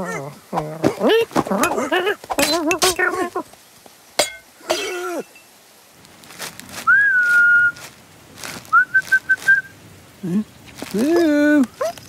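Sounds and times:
voice-like cry: 0.0s - 3.5s
man whistling: 6.9s - 7.8s, 8.7s - 9.7s.

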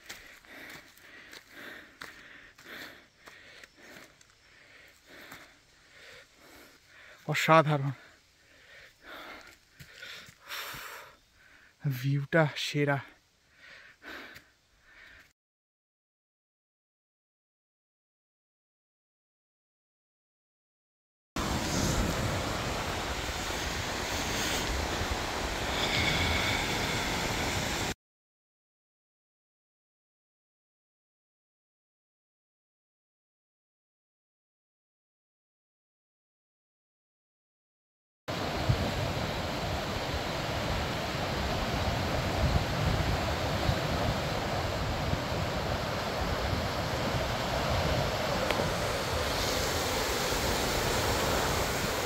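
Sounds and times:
waves washing onto stony shore: 21.4s - 27.9s, 38.4s - 52.0s
wind buffeting microphone: 38.4s - 52.0s.

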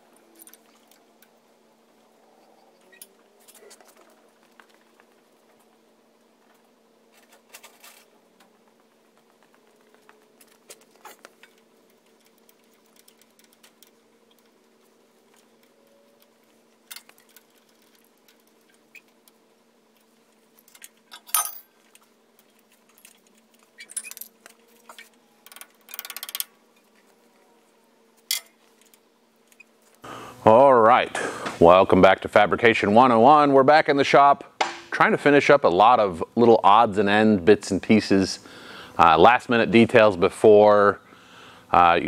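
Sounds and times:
faint steady hum: 0.0s - 42.0s
metallic clinks: 20.6s - 21.7s.

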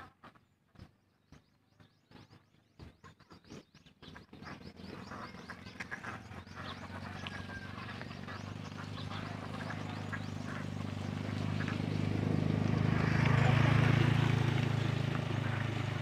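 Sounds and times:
ducks quacking: 4.4s - 16.0s.

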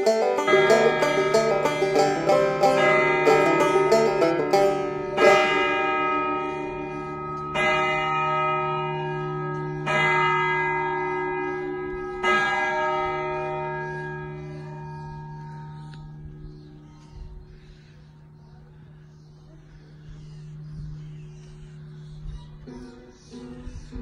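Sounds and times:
church bell strikes: 0.0s - 16.8s.

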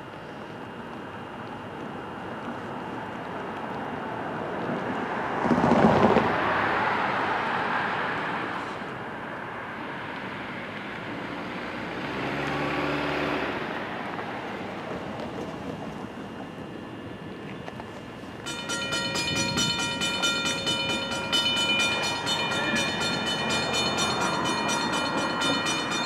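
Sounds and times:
distant locomotive horn: 18.4s - 26.0s.

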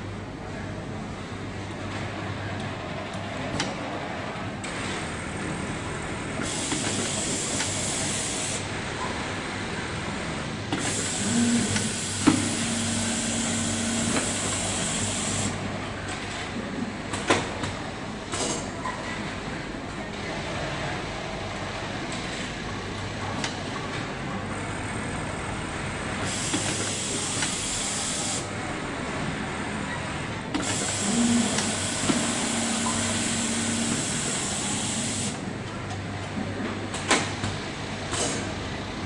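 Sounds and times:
steady machine hum: 0.0s - 17.1s, 27.0s - 36.2s.

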